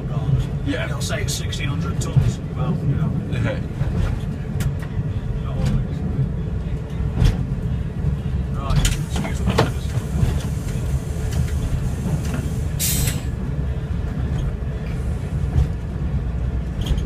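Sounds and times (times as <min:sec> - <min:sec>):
train diesel rumble: 0:00.0 - 0:17.0
wheels clicking on track: 0:00.0 - 0:17.0
short hiss: 0:12.2 - 0:13.3.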